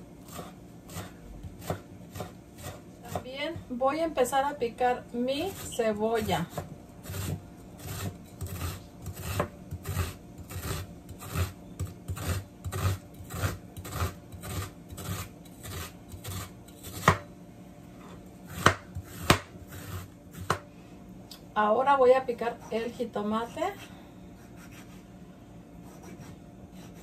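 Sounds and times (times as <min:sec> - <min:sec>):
knife chopping on wooden board: 0:00.3 - 0:03.3, 0:06.5 - 0:17.3, 0:18.5 - 0:20.7.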